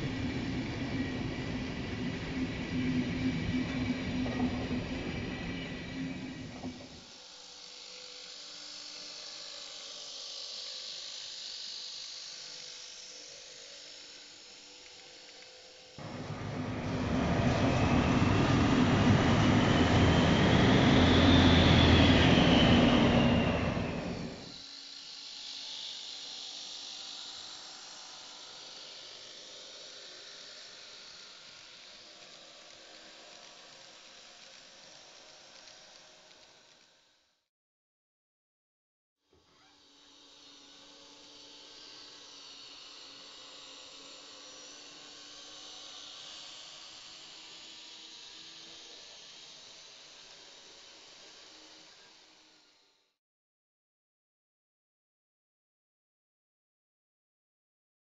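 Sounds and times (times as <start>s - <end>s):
model train whirring on track: 0.0s - 37.0s, 40.2s - 52.8s
hiss: 16.0s - 24.9s.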